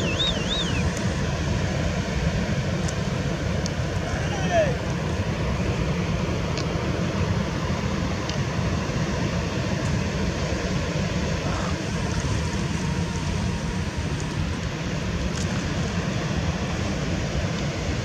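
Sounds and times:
wind buffeting microphone: 0:00.0 - 0:18.0.

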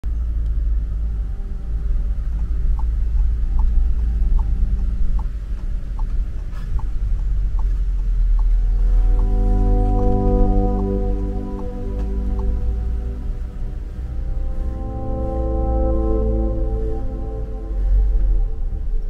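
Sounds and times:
engine and road rumble: 0:00.0 - 0:19.0
turn indicator ticking: 0:00.3 - 0:13.5.

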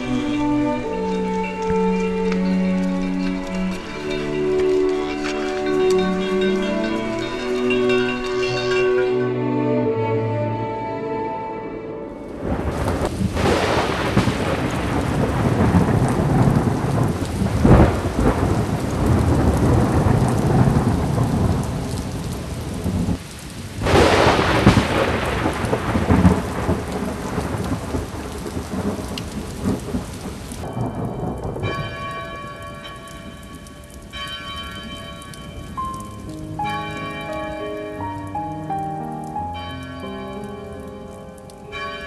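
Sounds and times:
bell-like tune: 0:00.0 - 0:10.4, 0:30.6 - 0:42.0
soft music: 0:00.0 - 0:13.1, 0:30.6 - 0:42.0
heavy rain: 0:00.0 - 0:42.0
rolling thunder: 0:12.3 - 0:34.1.

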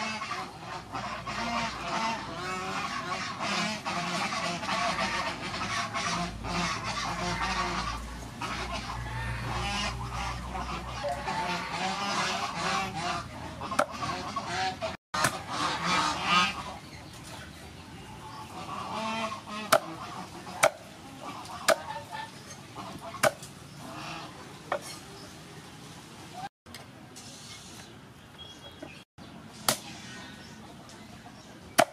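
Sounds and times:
fowl honking: 0:00.0 - 0:16.9, 0:18.3 - 0:24.3
cleaver chopping on wooden board: 0:20.6 - 0:20.8, 0:23.2 - 0:23.4.

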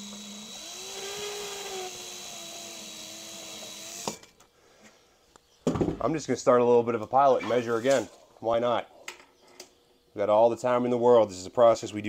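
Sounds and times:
power drill motor whine: 0:00.0 - 0:04.3.

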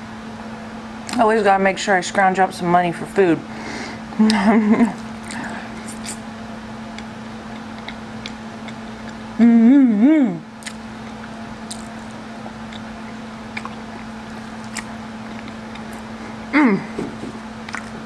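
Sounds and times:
steady low hum: 0:00.0 - 0:18.0
chewing: 0:04.3 - 0:06.3, 0:06.9 - 0:09.3, 0:10.6 - 0:18.0
wet mouth clicks: 0:05.2 - 0:06.2, 0:06.9 - 0:09.2, 0:10.6 - 0:16.2
person humming: 0:09.4 - 0:10.5, 0:16.5 - 0:17.1.

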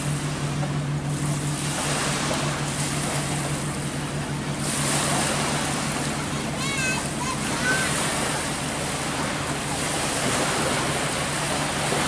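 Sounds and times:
water splashing: 0:00.0 - 0:12.0
watercraft engine humming: 0:00.0 - 0:12.0
wind: 0:00.0 - 0:12.0.

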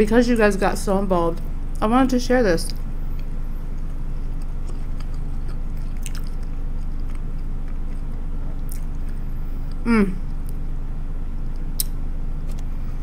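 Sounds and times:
steady low hum: 0:00.0 - 0:13.0
person chewing food: 0:02.7 - 0:10.6.

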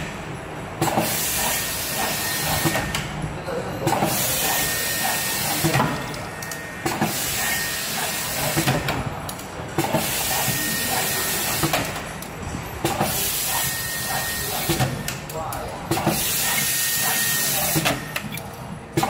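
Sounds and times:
machine clicks and knocks: 0:08.4 - 0:13.2.

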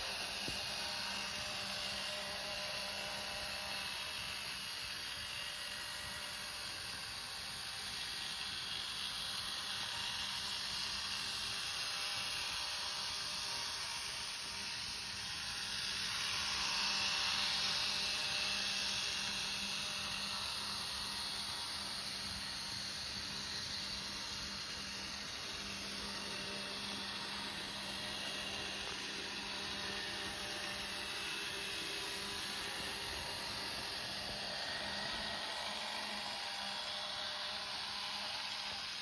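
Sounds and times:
model train whirring: 0:00.0 - 0:39.0.

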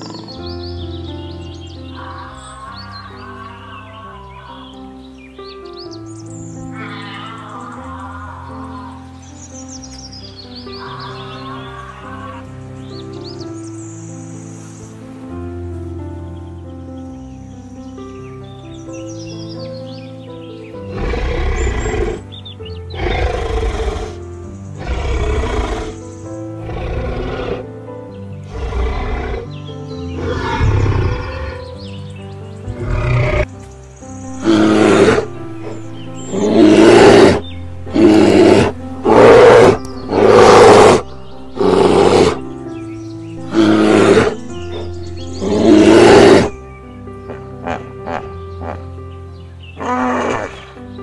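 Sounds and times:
background music: 0:00.0 - 0:51.0
loud animal roars: 0:20.9 - 0:22.2, 0:22.9 - 0:24.2, 0:24.8 - 0:26.0, 0:26.6 - 0:27.6, 0:28.5 - 0:29.5, 0:30.2 - 0:31.7, 0:32.7 - 0:33.5, 0:34.4 - 0:42.4, 0:43.5 - 0:46.6.

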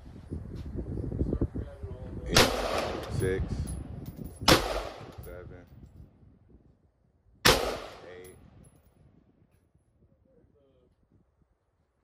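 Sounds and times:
rifle shots echoing: 0:02.3 - 0:03.2, 0:04.5 - 0:05.3, 0:07.5 - 0:08.3.

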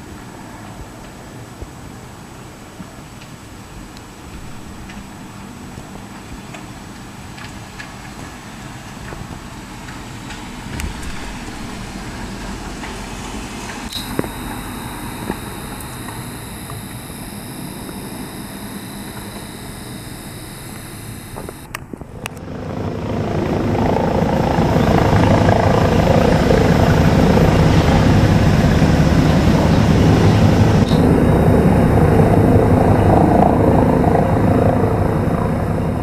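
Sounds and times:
faint steady high tones: 0:13.9 - 0:21.7, 0:29.3 - 0:36.0
clicks: 0:13.9 - 0:22.4
helicopter rotors chopping: 0:13.9 - 0:36.0.

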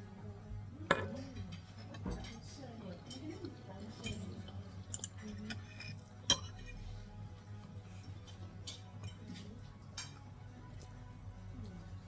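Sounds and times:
quiet background music: 0:00.0 - 0:12.0
cutlery clicking against a plate: 0:00.9 - 0:06.8.

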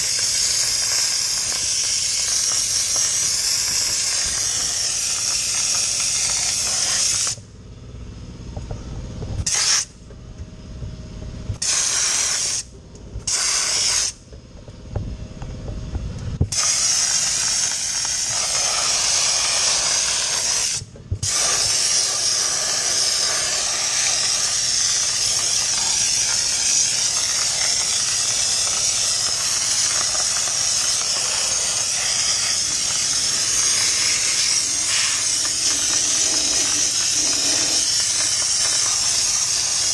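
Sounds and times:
dry ice blasting gun hissing: 0:00.0 - 0:07.4, 0:09.4 - 0:10.0, 0:11.6 - 0:14.2, 0:16.5 - 0:39.9
low rumble: 0:07.4 - 0:11.6.

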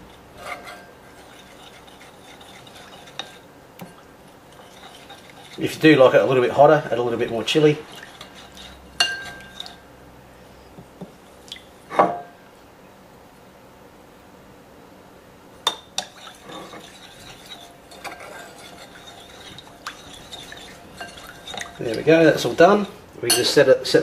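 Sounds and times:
metal spoon stirring sauce: 0:00.4 - 0:09.8, 0:15.8 - 0:23.7
spoon clinking against bowl: 0:08.2 - 0:09.8, 0:15.7 - 0:23.7.

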